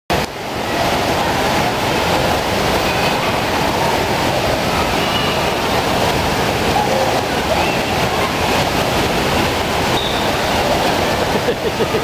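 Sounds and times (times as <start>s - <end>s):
water rushing in echoing hall: 0.1s - 12.0s.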